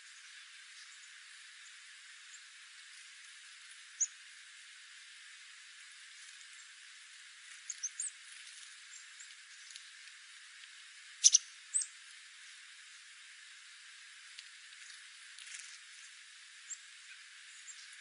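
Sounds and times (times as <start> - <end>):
songbird chip calls: 4.0 - 4.2, 7.7 - 8.2, 11.2 - 12.0.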